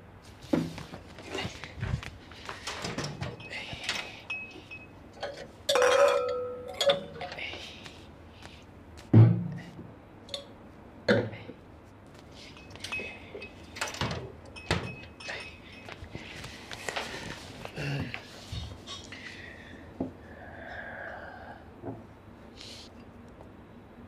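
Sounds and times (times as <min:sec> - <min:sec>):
wine glasses clinking: 0:03.4 - 0:07.4, 0:12.5 - 0:13.8, 0:14.5 - 0:16.0.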